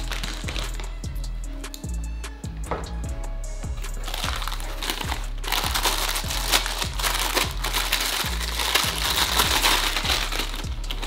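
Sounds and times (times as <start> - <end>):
plastic bag crinkling: 0.0 - 0.9, 4.0 - 11.0
background music with bass drum: 0.0 - 11.0.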